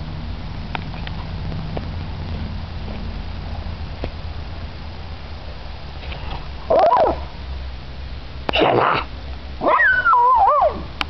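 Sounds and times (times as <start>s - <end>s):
dog whining: 6.7s - 7.2s, 9.6s - 10.8s
dog yelping and barking: 6.7s - 7.3s, 9.6s - 10.9s.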